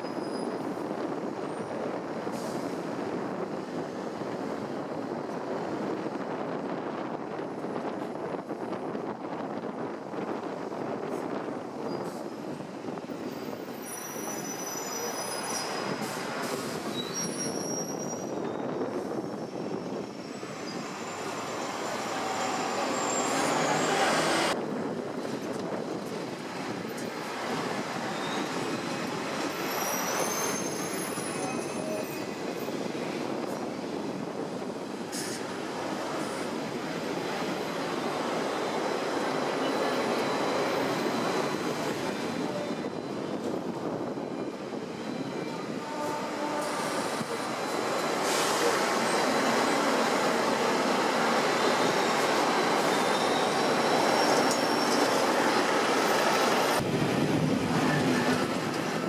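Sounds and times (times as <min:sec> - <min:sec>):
tram rumbling on rails: 0:00.0 - 0:59.0
wheel squeals: 0:13.3 - 0:24.6, 0:27.9 - 0:32.8, 0:44.2 - 0:56.8.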